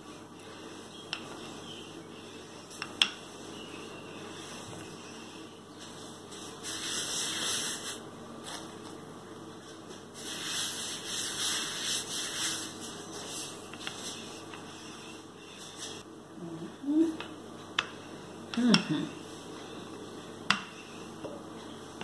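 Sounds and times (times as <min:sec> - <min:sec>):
rolling pin rolling dough: 0:00.0 - 0:07.9, 0:09.6 - 0:16.0.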